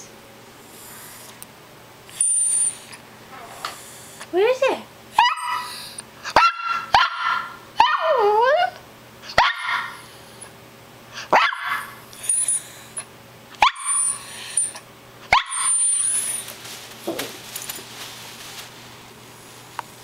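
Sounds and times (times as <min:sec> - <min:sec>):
small dog barking high-pitched: 0:05.2 - 0:08.3, 0:09.3 - 0:10.0, 0:11.3 - 0:12.0, 0:13.6 - 0:14.0, 0:15.3 - 0:15.8.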